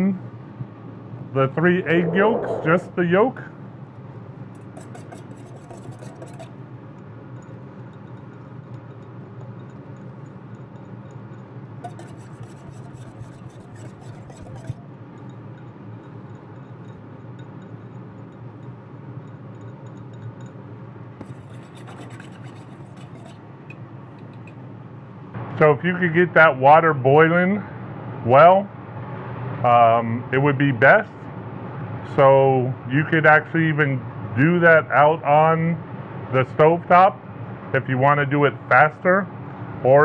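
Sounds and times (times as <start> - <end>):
steady low hum: 0.0 - 33.0
utensil scraping metal bowl: 4.6 - 20.6, 21.2 - 24.6.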